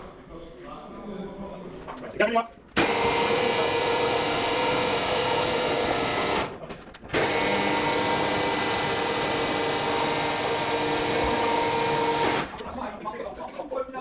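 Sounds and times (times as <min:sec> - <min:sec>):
electric lifting jacks motor drone: 0:02.8 - 0:06.5, 0:07.1 - 0:12.6.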